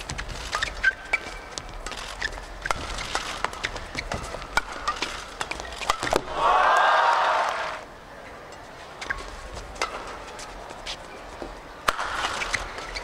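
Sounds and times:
shoes squeaking on court: 0.0 - 5.9, 10.2 - 13.0
rackets hitting shuttlecock: 2.6 - 6.4, 11.8 - 13.0
people shouting and cheering: 6.2 - 7.8.

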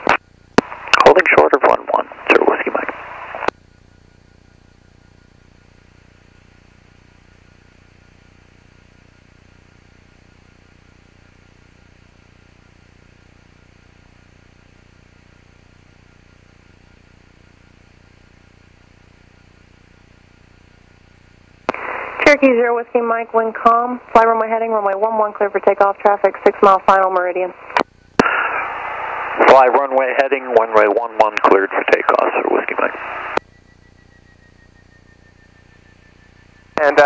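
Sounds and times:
radio click: 0.0 - 1.2, 2.2 - 3.6, 21.7 - 22.2, 27.7 - 29.9, 30.9 - 33.4
radio hiss and hum: 0.0 - 37.0.

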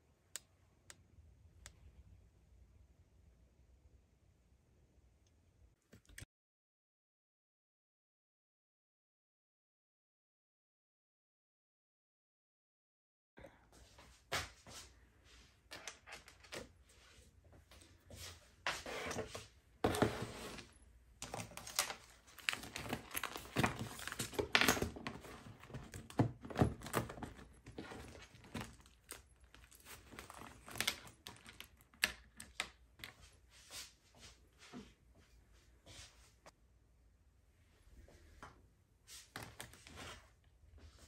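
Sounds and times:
paper and plastic rustling: 19.1 - 33.3, 39.2 - 40.3.

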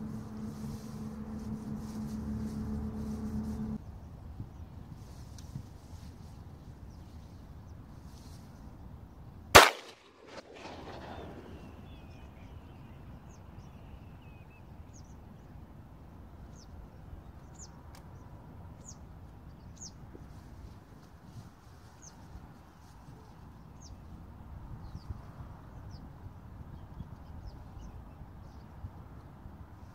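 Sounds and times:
shotgun shot: 9.6 - 11.8.

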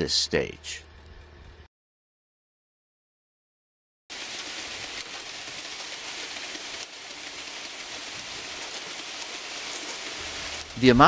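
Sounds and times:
wet concrete pouring down chute: 4.1 - 11.0.

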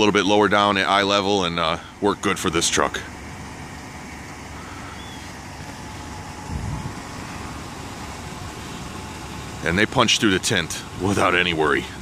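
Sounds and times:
car engine idling: 0.0 - 12.0
wind rumble on microphone: 6.4 - 7.1.

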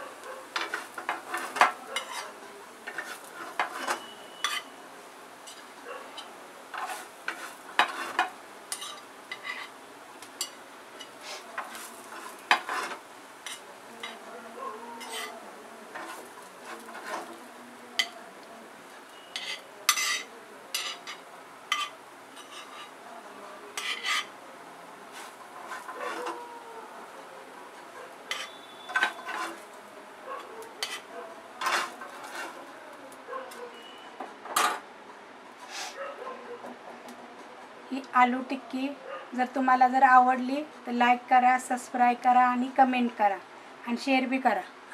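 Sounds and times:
metal spatula scraping griddle: 0.5 - 4.8, 5.4 - 9.8, 10.4 - 14.3, 15.0 - 18.2, 19.1 - 23.0, 23.8 - 24.4, 25.1 - 26.5, 27.7 - 29.8, 30.4 - 32.8.

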